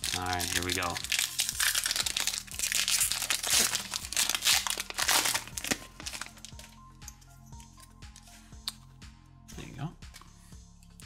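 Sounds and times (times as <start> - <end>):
foil wrapper crinkling: 0.0 - 6.8.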